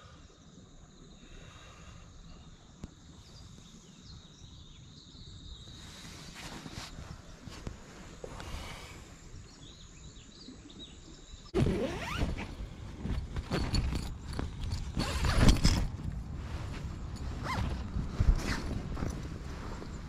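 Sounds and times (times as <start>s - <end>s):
rustling and handling noise: 11.6s - 20.0s.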